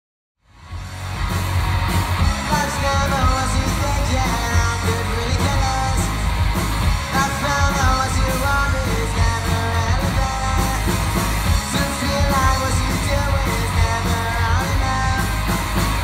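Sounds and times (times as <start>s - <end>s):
bass guitar: 0.4s - 16.0s
drum kit: 0.5s - 16.0s
electric guitar: 0.5s - 16.0s
person singing: 2.2s - 15.9s.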